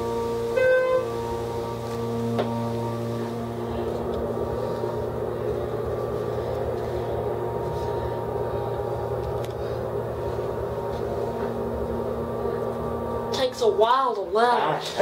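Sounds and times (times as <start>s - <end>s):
elevator pump motor humming: 0.0s - 15.0s.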